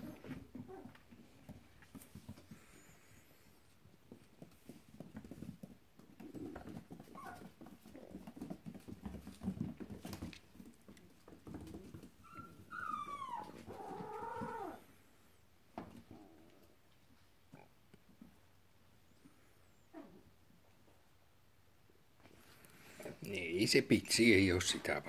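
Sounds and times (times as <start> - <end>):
puppy whining: 0.0 - 1.0, 6.3 - 8.5, 11.7 - 14.8
paws clicking on wooden floor: 0.0 - 14.7.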